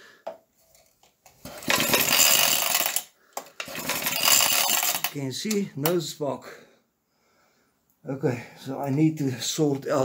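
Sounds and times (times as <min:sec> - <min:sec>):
engine pull-start rattling whirr: 0:01.5 - 0:03.0, 0:03.6 - 0:05.1.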